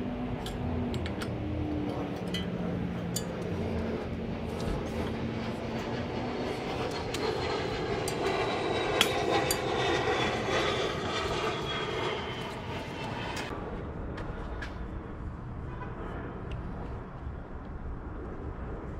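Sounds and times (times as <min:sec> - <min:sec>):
distant engine drone: 0:00.0 - 0:18.9.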